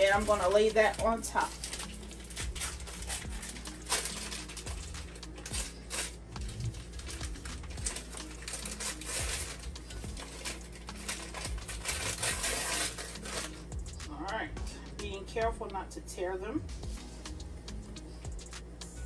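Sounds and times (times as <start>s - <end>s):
packaging crinkling: 0.0s - 13.6s.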